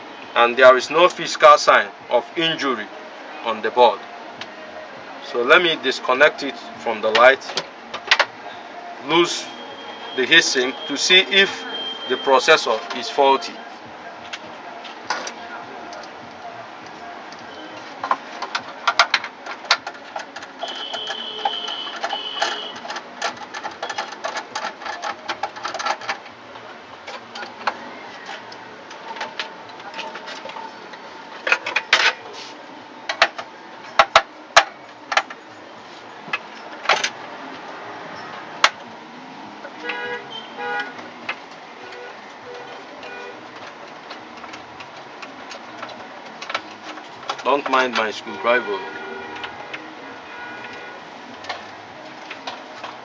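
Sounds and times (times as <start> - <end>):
screwdriver clicks and metallic knocks: 17.3 - 26.3.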